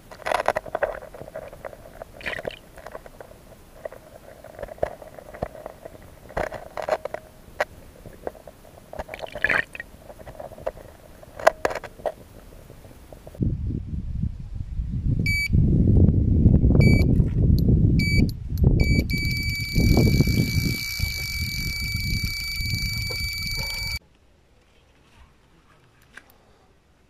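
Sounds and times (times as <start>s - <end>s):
low rumbling microphone noise: 0.0s - 24.0s
bite alarm beeps: 15.3s - 15.5s, 16.8s - 17.1s, 18.0s - 24.0s.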